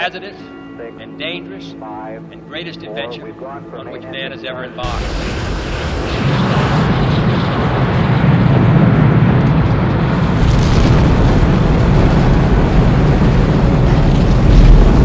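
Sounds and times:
rocket engines roaring: 2.6s - 15.0s.

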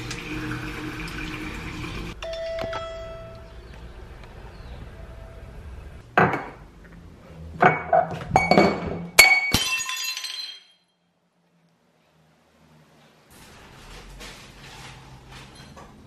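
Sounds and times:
glass items clinking: 7.6s - 10.8s.

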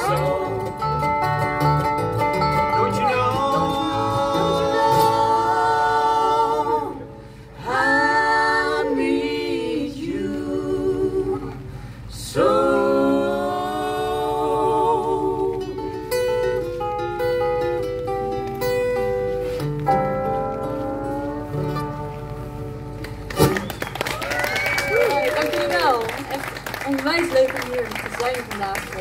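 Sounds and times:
voices singing in harmony: 0.0s - 0.8s, 2.8s - 16.1s
upright bass: 0.0s - 23.9s.

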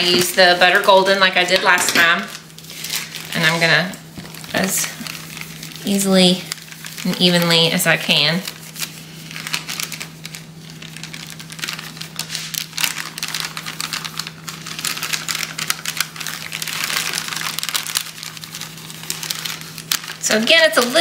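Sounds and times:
plastic bag crinkling: 0.0s - 21.0s
steady low hum: 0.0s - 21.0s.

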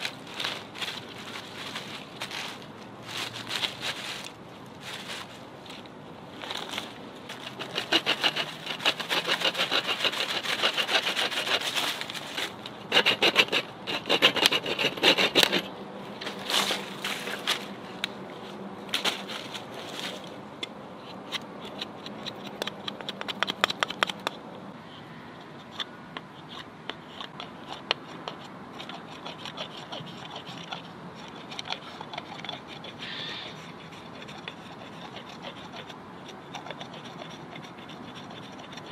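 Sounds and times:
knife sawing wood: 7.3s - 17.6s, 25.6s - 38.9s.

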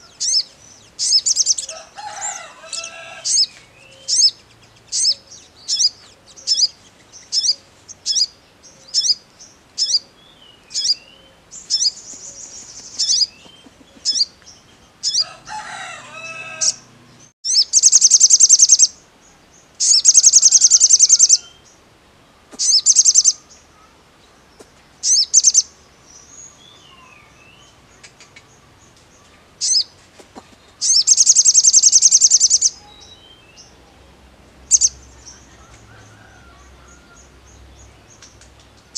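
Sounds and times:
bird chips and trills: 0.0s - 9.2s, 10.7s - 15.3s, 17.5s - 19.0s, 19.8s - 21.6s, 22.6s - 23.5s, 25.0s - 25.7s, 29.6s - 30.0s, 30.6s - 33.6s.

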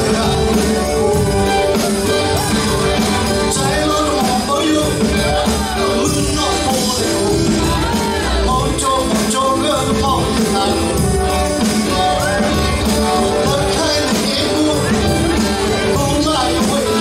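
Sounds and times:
live rock band playing: 0.0s - 17.0s
man singing: 0.0s - 17.0s.

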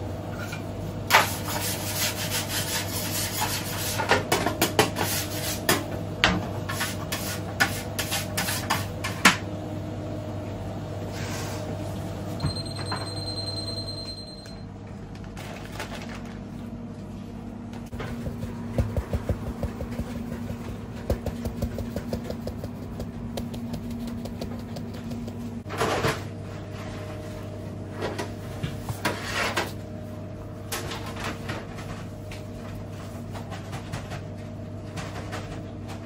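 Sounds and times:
equipment hum: 0.0s - 36.0s
spatula scraping on bread: 1.1s - 4.1s
metal shaker tapping: 18.2s - 25.5s.

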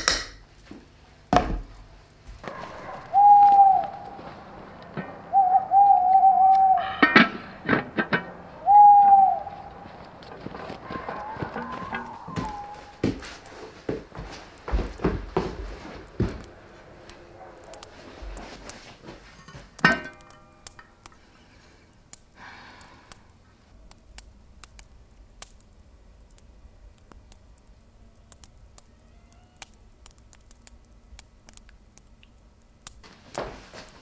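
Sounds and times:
kitchenware clicks and knocks: 0.0s - 0.4s.

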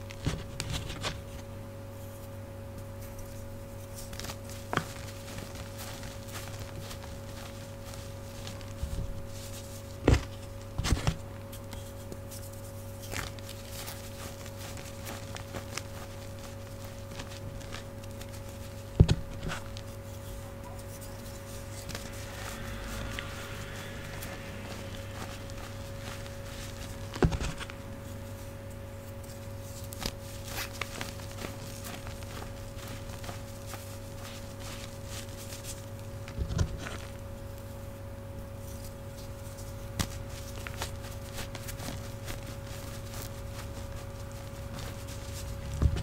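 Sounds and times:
refrigerator humming: 0.0s - 46.0s
powder crunching: 12.9s - 35.9s.

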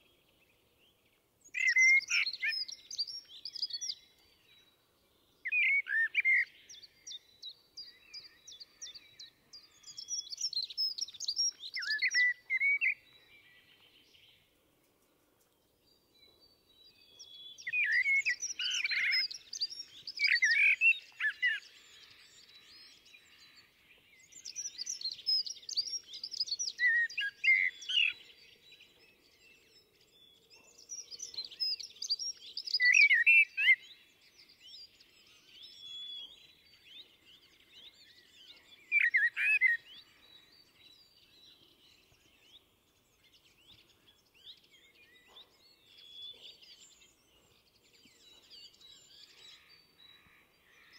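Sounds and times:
blackbird singing: 0.0s - 14.5s, 15.8s - 50.9s.

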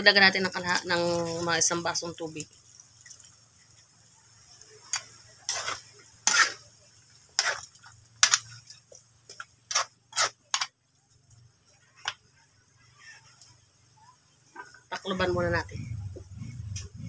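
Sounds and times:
metal spatula scraping a wok: 4.8s - 10.7s.

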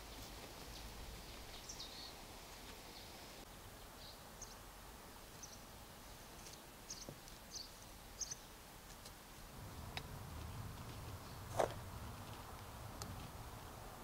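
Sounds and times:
background hiss: 0.0s - 14.0s
faint bird chirps: 0.1s - 2.2s, 6.8s - 8.6s.

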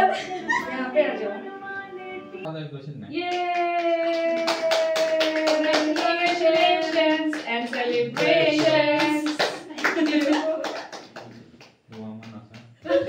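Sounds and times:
group singing: 0.0s - 2.1s, 5.6s - 9.7s
hands clapping: 3.2s - 13.0s.

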